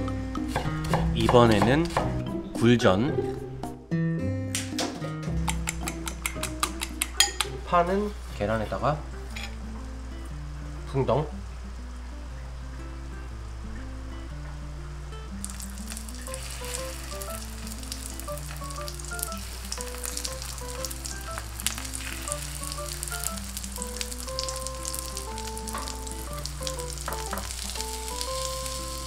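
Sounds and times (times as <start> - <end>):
background music: 0.0 - 29.0
food sizzling in hot oil: 15.3 - 29.0.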